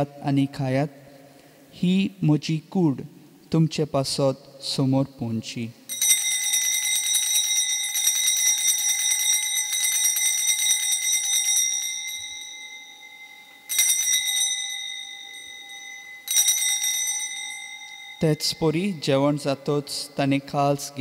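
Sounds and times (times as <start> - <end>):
bells jingling: 5.9 - 20.2.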